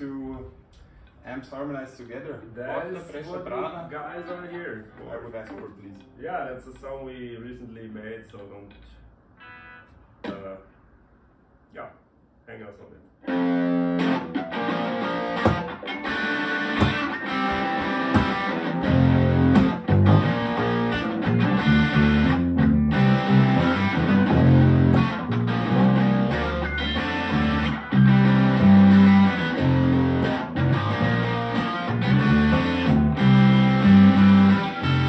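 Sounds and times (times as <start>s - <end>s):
electric guitar: 9.4s - 10.6s, 13.2s - 35.0s
bass guitar notes: 13.3s - 35.0s.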